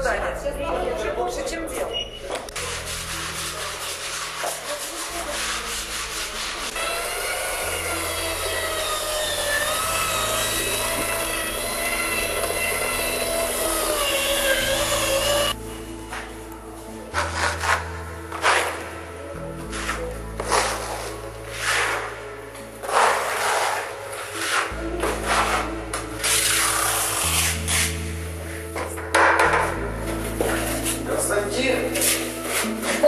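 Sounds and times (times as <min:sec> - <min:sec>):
sandpaper rasping: 0:02.5 - 0:15.6, 0:17.2 - 0:18.9, 0:19.7 - 0:22.2, 0:22.8 - 0:28.6, 0:31.9 - 0:33.0.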